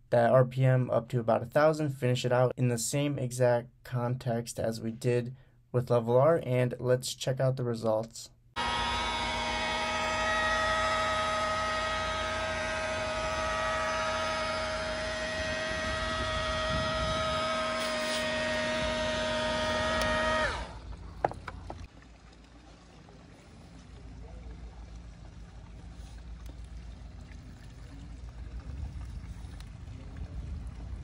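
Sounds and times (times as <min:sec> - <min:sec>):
electric polisher whining: 0:08.6 - 0:21.9.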